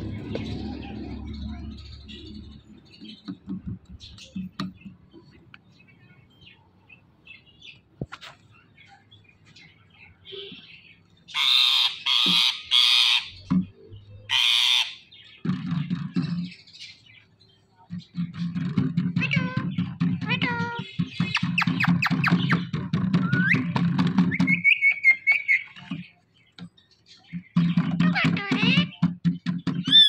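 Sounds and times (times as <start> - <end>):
parakeet squawking: 11.3 - 13.4, 14.3 - 15.1, 19.1 - 23.7, 27.9 - 29.1.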